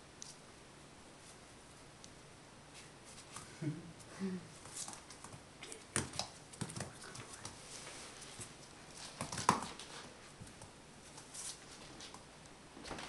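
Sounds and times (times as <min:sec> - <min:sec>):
dog claws clicking on floor: 0:04.6 - 0:07.6, 0:08.4 - 0:12.2.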